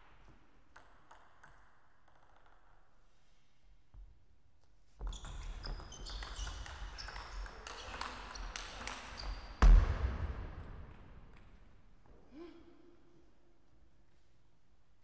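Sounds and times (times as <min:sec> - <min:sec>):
loud thump: 0:09.6 - 0:10.7.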